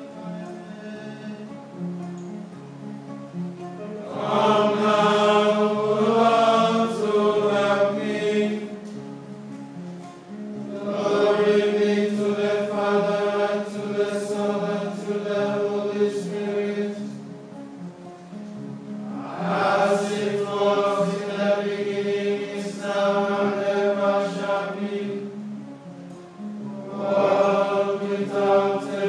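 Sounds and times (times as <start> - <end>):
monks chanting: 0.1 - 1.5, 4.0 - 8.9, 10.7 - 17.2, 19.1 - 25.4, 26.7 - 29.0.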